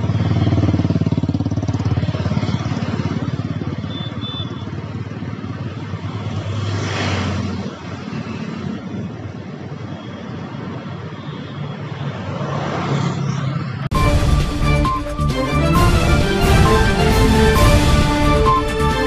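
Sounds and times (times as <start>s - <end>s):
cars and motorcycles passing: 0.0s - 14.0s
vehicle swishing past: 6.4s - 7.7s.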